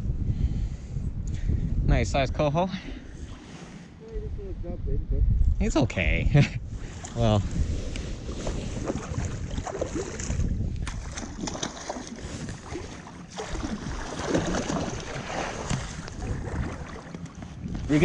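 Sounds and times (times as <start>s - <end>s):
wind rumbling on microphone: 0.0s - 18.0s
fish thrashing water splashing: 8.4s - 17.3s.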